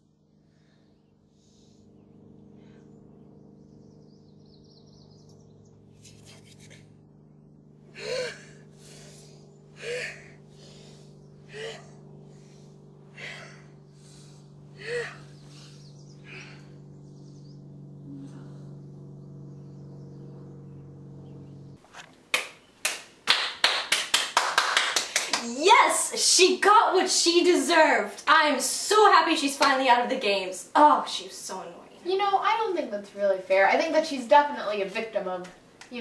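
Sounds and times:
steady low hum: 0.0s - 36.0s
woman gasping for breath: 8.0s - 16.8s.

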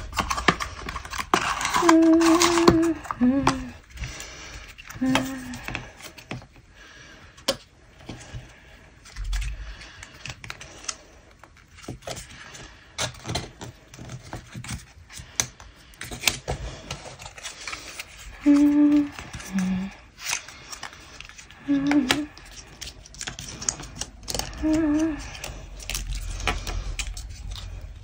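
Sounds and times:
paper packaging rustling: 0.0s - 6.6s, 8.0s - 28.0s.

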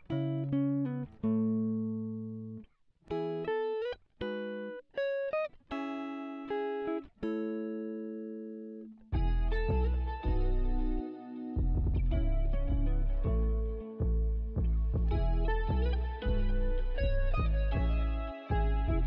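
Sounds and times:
fuller music with bass: 0.0s - 3.3s, 9.1s - 19.0s
slow plucked chords: 9.1s - 19.0s.

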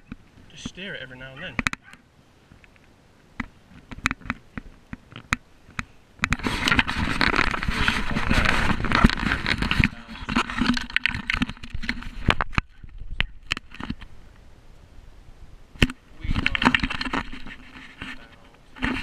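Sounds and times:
hand rubbing on camera: 6.3s - 13.0s, 16.3s - 19.0s.

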